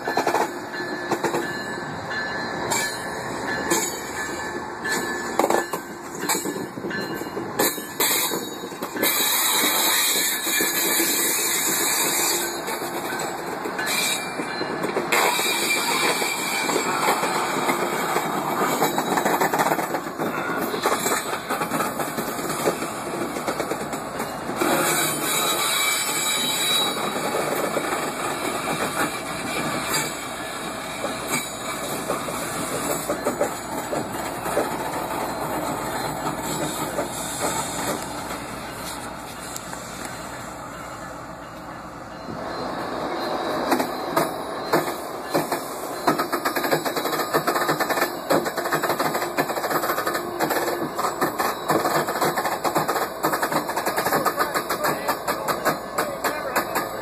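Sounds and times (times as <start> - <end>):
diesel locomotive engine roaring: 0.0 - 57.0
wheels clanking on track: 0.0 - 57.0.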